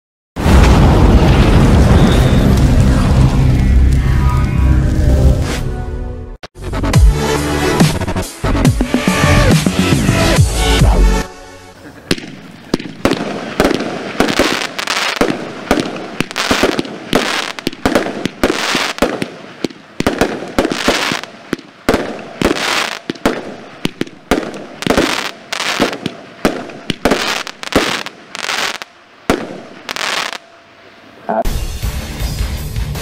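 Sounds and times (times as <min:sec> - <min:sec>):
firework bangs: 0:00.4 - 0:03.9, 0:11.8 - 0:30.5
firework crackling hiss: 0:00.4 - 0:03.9, 0:11.8 - 0:30.4.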